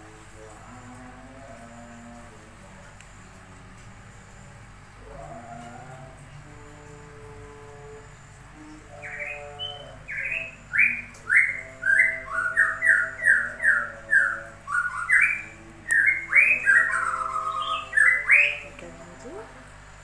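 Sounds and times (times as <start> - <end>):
songbird whistling: 9.1 - 18.7.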